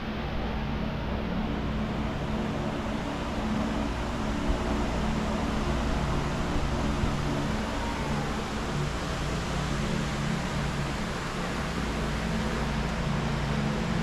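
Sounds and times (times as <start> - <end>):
machinery hum: 0.0 - 14.0
rush of air-like noise: 0.0 - 14.0.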